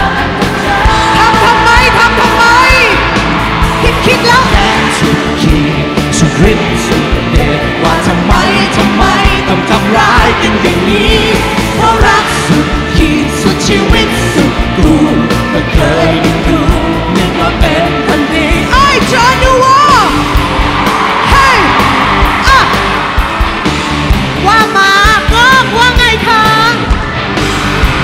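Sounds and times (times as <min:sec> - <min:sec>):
woman singing: 0:00.0 - 0:03.0, 0:08.1 - 0:19.9, 0:24.5 - 0:26.8
rock band playing: 0:00.0 - 0:28.0
steady drum beat: 0:00.0 - 0:28.0.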